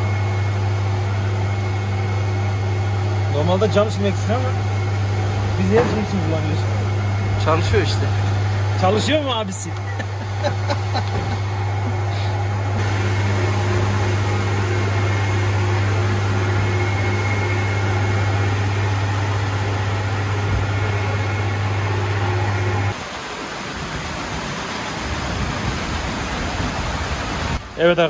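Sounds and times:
low machine hum: 0:00.0 - 0:27.6.

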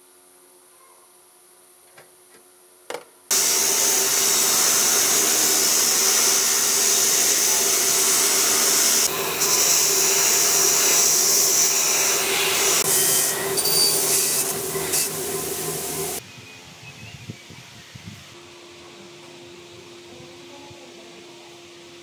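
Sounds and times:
rushing air hiss: 0:03.3 - 0:16.2.

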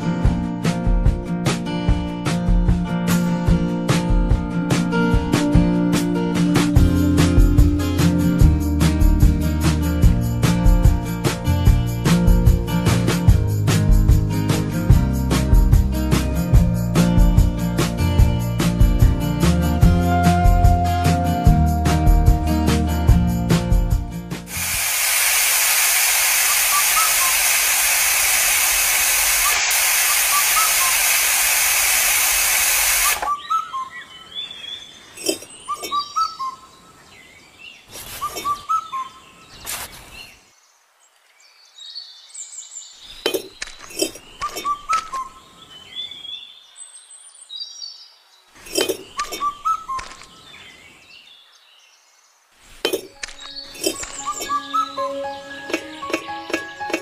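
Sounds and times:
loud steady hiss: 0:24.4 - 0:33.3
birds chirping: 0:26.3 - 0:57.0
small bricks clicking and tapping: 0:43.2 - 0:45.1.

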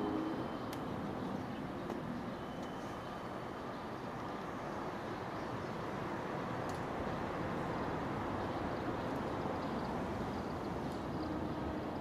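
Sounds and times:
faint tone: 0:00.0 - 0:00.7
electric train running rumble: 0:00.0 - 0:12.0.

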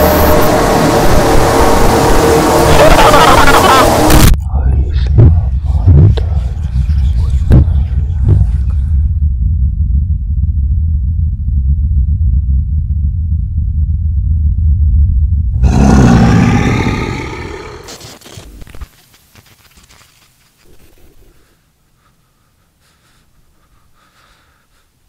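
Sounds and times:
deep rumbling drone: 0:00.0 - 0:17.9.

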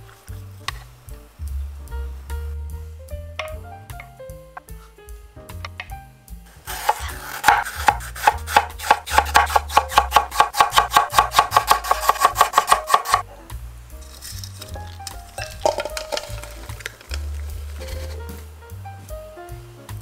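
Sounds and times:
background music: 0:00.0 - 0:20.0
knife slicing on cutting board: 0:06.7 - 0:13.2.

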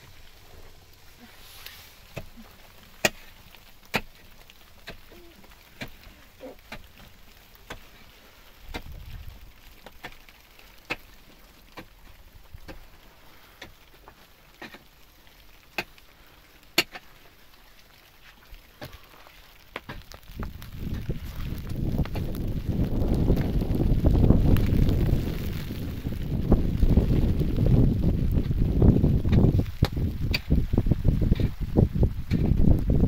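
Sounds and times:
wind on microphone: 0:20.3 - 0:33.0.

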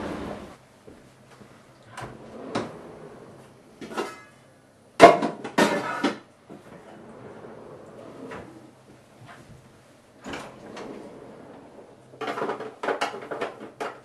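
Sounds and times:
drawer opening: 0:01.9 - 0:04.2, 0:05.9 - 0:09.4, 0:10.2 - 0:14.0
metal pots and pans clattering: 0:03.8 - 0:04.4, 0:05.0 - 0:06.3.

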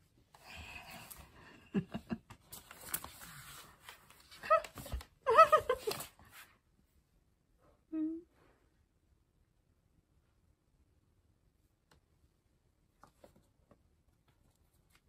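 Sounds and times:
rustling: 0:02.4 - 0:06.6.

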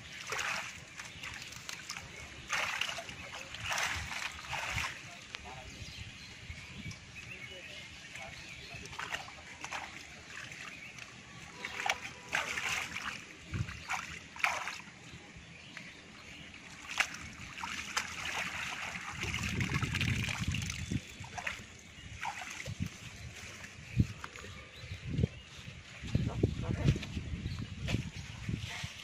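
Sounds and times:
shallow water splashing: 0:00.0 - 0:05.6, 0:08.0 - 0:15.0, 0:15.7 - 0:24.8.

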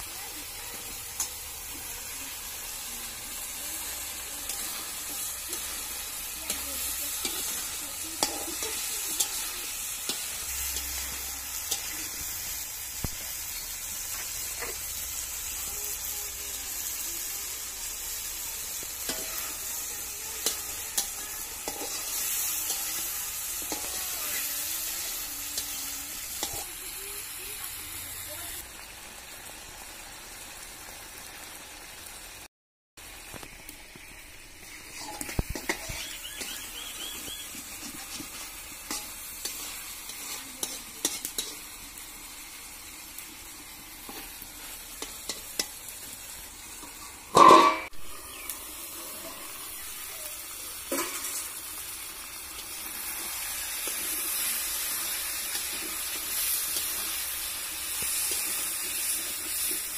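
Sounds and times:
vegetables sizzling in oil: 0:00.0 - 0:59.9
metal spatula scraping a wok: 0:01.1 - 0:12.6, 0:18.1 - 0:26.7, 0:34.6 - 0:41.8, 0:43.8 - 0:49.8, 0:50.8 - 0:51.6.

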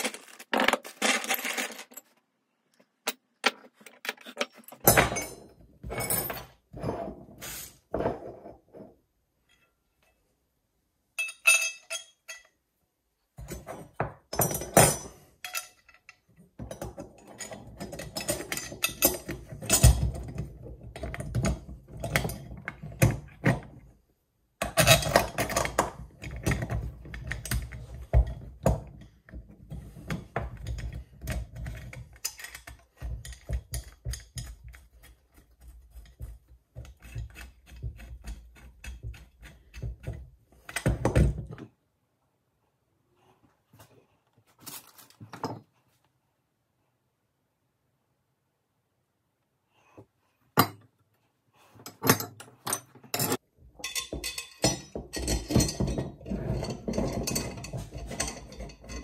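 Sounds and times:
metal bolts clinking on frame: 0:11.2 - 0:12.6, 0:51.9 - 0:59.0.

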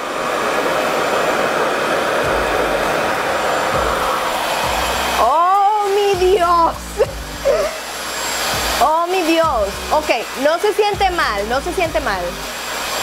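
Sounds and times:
hair dryer air rushing: 0:00.0 - 0:13.0.

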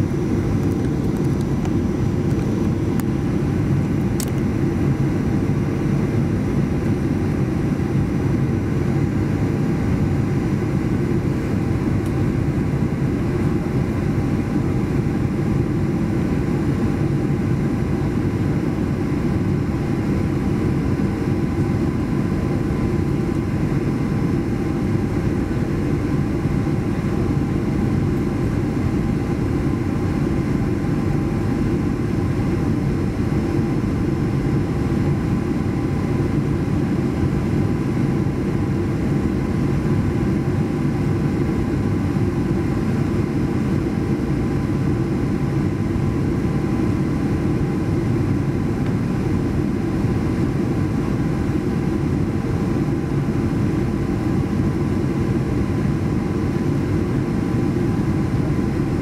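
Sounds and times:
airliner cabin engine rumble: 0:00.0 - 0:59.0
faint steady hums: 0:00.0 - 0:59.0.

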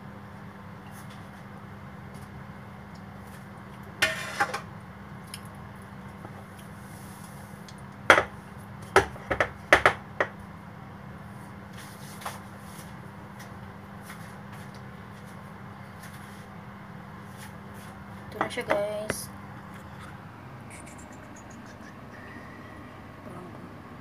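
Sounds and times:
steady low hum: 0:10.4 - 0:24.0.

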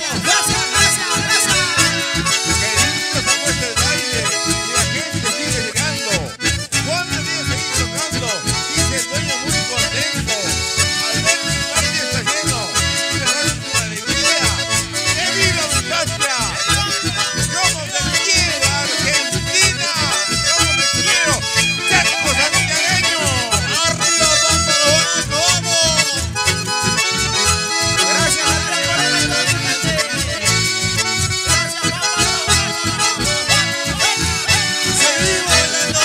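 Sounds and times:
accordions playing melody: 0:00.0 - 0:36.0
strummed acoustic guitar: 0:00.0 - 0:36.0.

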